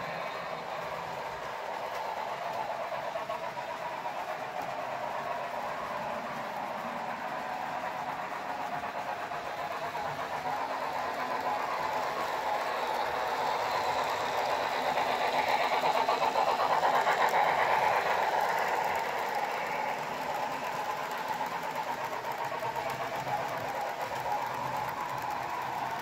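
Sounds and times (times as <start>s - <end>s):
model train wheels rattling: 0.0s - 26.0s.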